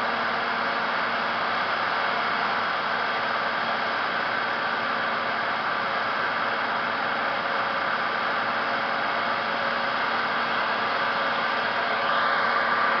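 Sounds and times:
machinery hissing and humming: 0.0s - 13.0s
faint rising whine: 10.8s - 13.0s.

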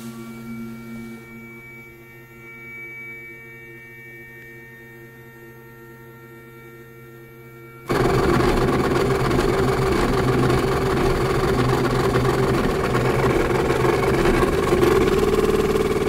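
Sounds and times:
stepper motor humming: 7.9s - 16.0s.

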